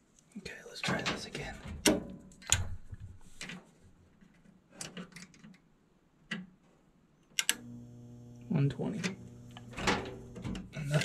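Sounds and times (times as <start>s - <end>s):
probes and wiring clicking: 7.4s - 11.0s
motor buzzing: 7.5s - 10.8s.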